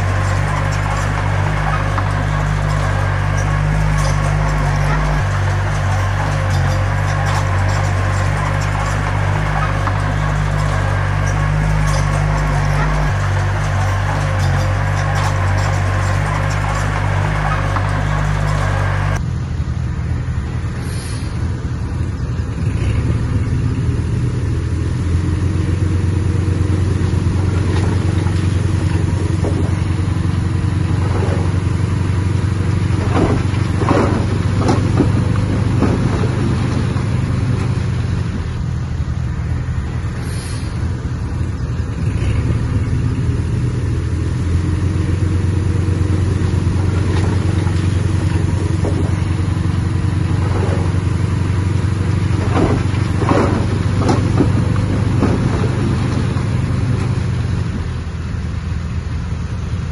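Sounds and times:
sharp squeaks or clanks: 0.0 - 19.2
bulldozer diesel engine running: 0.0 - 59.9.

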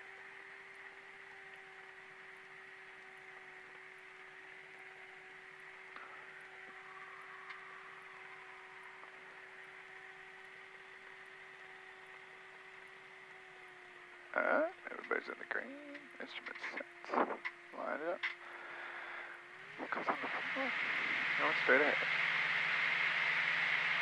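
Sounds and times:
faint steady hum with hiss: 0.0 - 24.0
muffled engine and propeller: 0.0 - 24.0.

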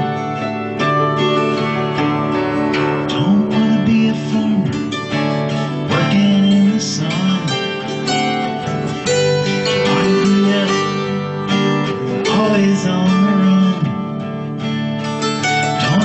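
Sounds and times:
acoustic guitar strumming: 0.0 - 16.0
man singing: 3.0 - 14.7, 15.6 - 16.0.

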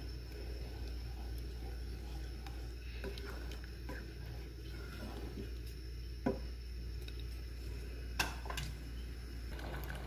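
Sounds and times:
wooden spatula stirring dal: 0.0 - 7.6
steady low hum: 0.0 - 10.0.

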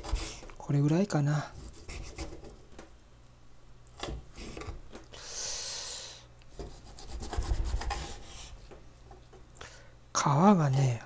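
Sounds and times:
knife sawing through meat: 0.0 - 0.4
knife cutting strokes on board: 0.0 - 0.5, 6.6 - 8.6.

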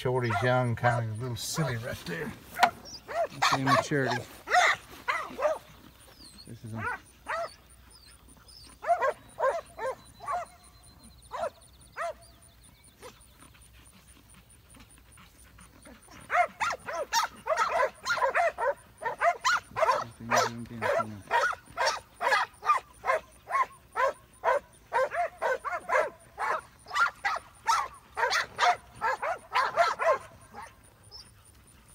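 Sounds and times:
dog barking: 0.2 - 1.3, 2.6 - 5.7, 6.8 - 7.6, 8.8 - 10.6, 11.3 - 12.2, 16.1 - 30.8.

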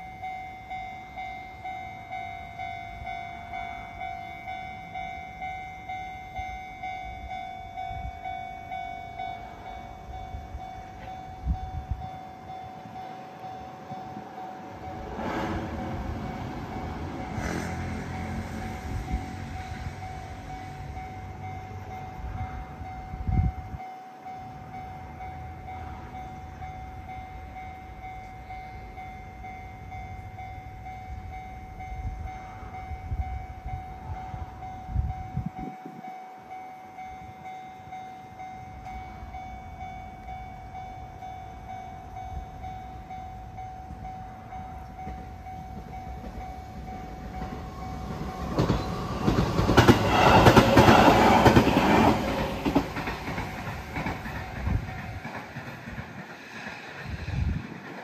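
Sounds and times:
level crossing warning bell ringing: 0.0 - 56.0
train passing: 0.0 - 58.0
wheels clattering over rail joints: 45.0 - 58.0.

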